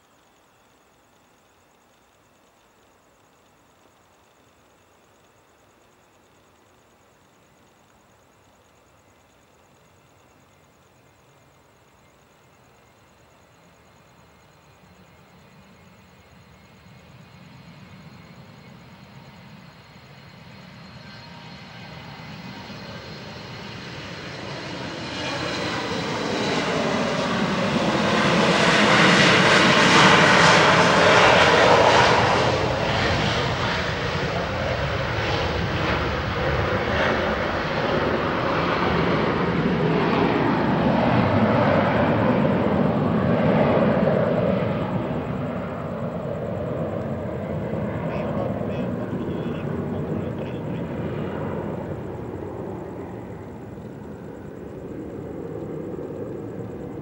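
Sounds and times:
jet engine whine: 13.6s - 57.0s
jet engines roaring on takeoff: 17.1s - 57.0s.

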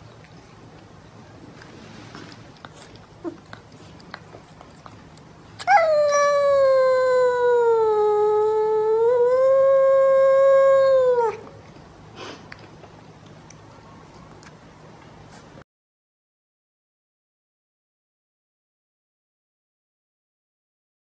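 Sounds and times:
cat yowling: 5.6s - 11.5s.

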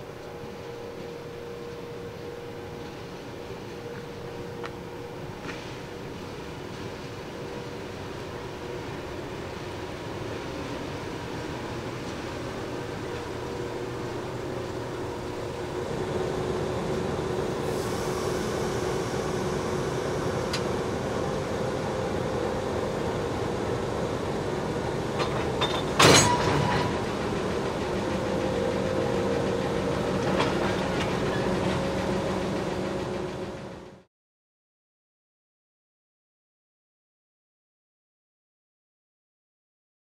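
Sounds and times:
diesel locomotive engines humming: 0.0s - 34.1s
loud metallic clank: 25.2s - 27.0s.

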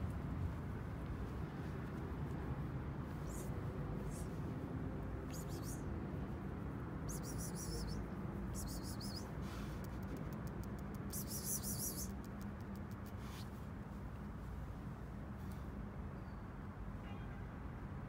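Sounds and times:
low street hum: 0.0s - 18.0s
small birds chirping: 5.2s - 5.9s, 7.0s - 13.5s.

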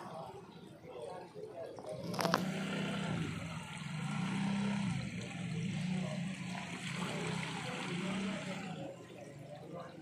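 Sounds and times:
boat engine drone: 2.0s - 10.0s.

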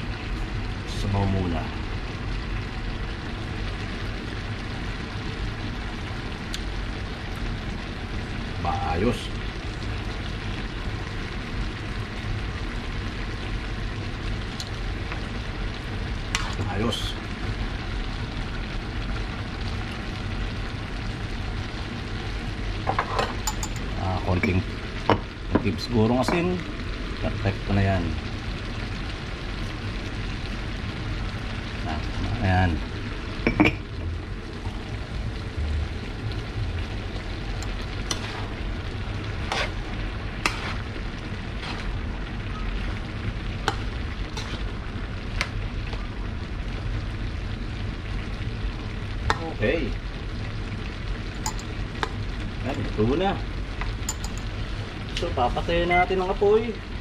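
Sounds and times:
food sizzling in a pan: 0.0s - 57.0s
low hum: 26.6s - 56.1s.

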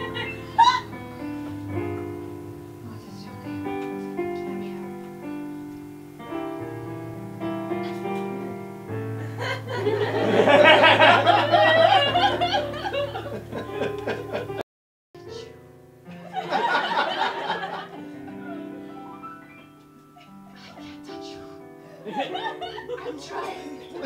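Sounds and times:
electric keyboard chords: 0.0s - 14.6s, 15.2s - 24.0s
audience laughter: 9.4s - 14.6s, 16.3s - 19.0s, 22.0s - 24.0s.

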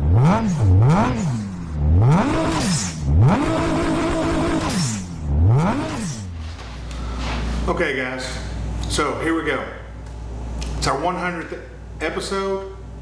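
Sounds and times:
car engine revving: 0.0s - 6.6s.

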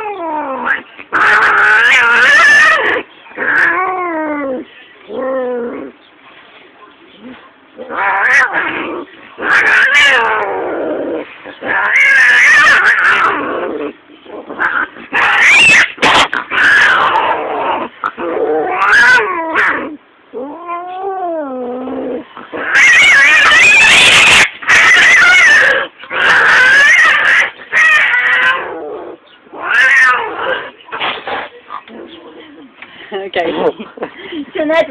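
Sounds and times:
cat yowling: 0.0s - 4.6s, 7.8s - 10.7s, 11.6s - 13.5s, 14.6s - 28.9s, 29.5s - 30.5s.

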